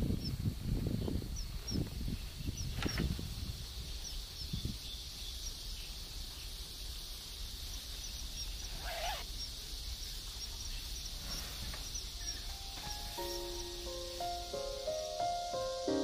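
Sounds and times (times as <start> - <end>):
low wind rumble: 0.0 - 16.0
steady high chirring: 12.0 - 16.0.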